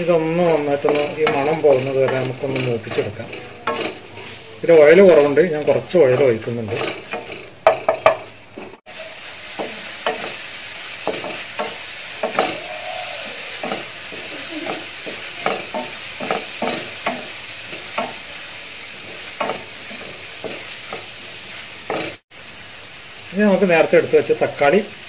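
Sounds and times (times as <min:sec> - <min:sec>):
wooden spatula scraping pan: 0:00.0 - 0:08.8, 0:09.5 - 0:22.2
onions sizzling in oil: 0:00.0 - 0:25.0.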